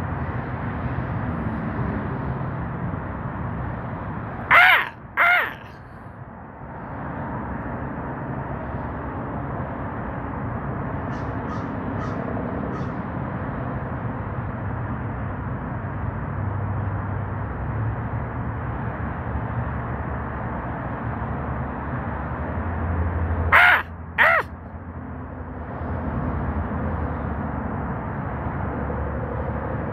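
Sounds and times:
crow cawing harshly: 4.5s - 5.8s, 23.5s - 24.5s.

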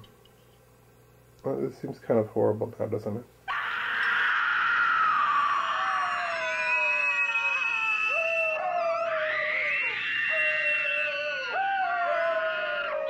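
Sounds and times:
woman screaming in terror: 3.5s - 13.0s.

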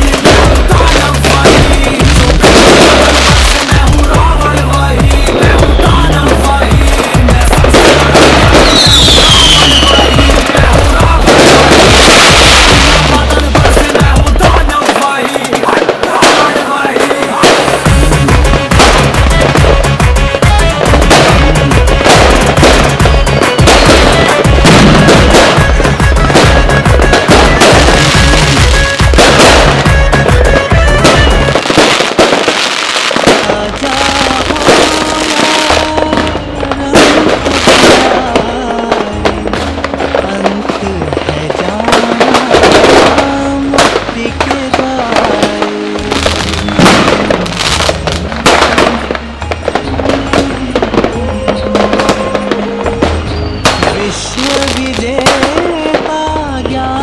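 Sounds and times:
fireworks bangs and crackles: 0.0s - 57.0s.

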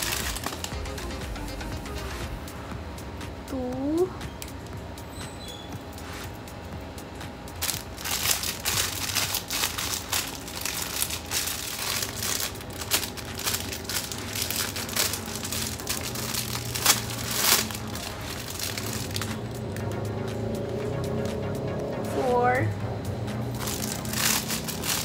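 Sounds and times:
plastic wrapping crinkling: 0.0s - 1.2s, 7.5s - 19.9s, 23.5s - 25.0s.

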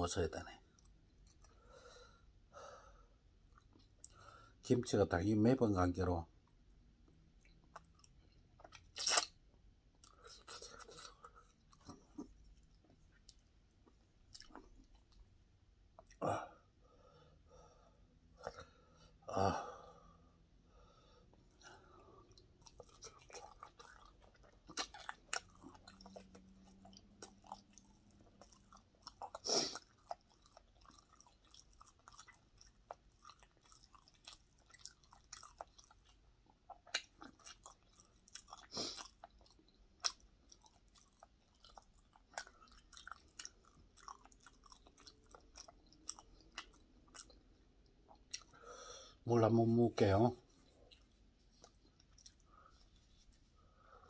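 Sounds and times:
man chewing crunchy food: 0.6s - 1.7s, 7.0s - 16.3s, 21.3s - 48.8s, 50.4s - 54.0s.

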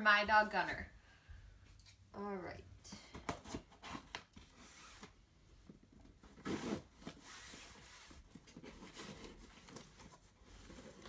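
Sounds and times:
cardboard rustle: 5.8s - 11.0s
cardboard scraping and rubbing: 6.2s - 11.0s.

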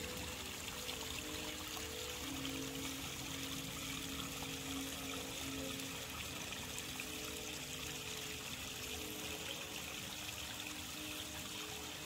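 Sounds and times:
soft background music: 0.0s - 12.0s
stream water trickling: 0.0s - 12.0s.

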